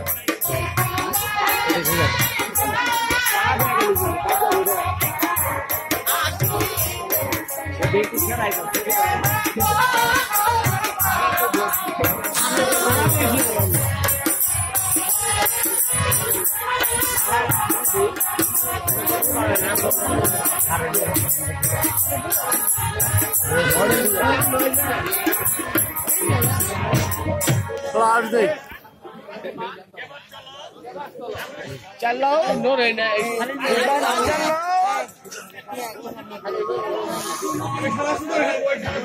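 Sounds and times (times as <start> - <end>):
jingling percussion: 0.0 - 28.2.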